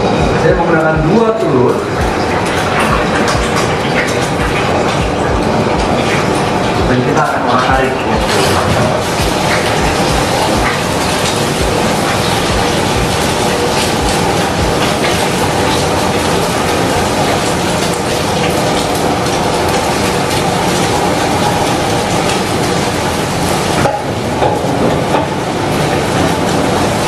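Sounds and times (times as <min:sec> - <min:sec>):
food sizzling in a frying pan: 0:07.6 - 0:27.0.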